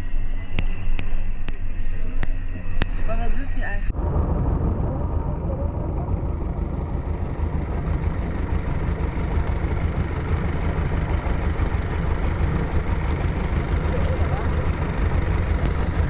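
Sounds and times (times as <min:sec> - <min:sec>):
boat engine droning: 0:03.9 - 0:16.0.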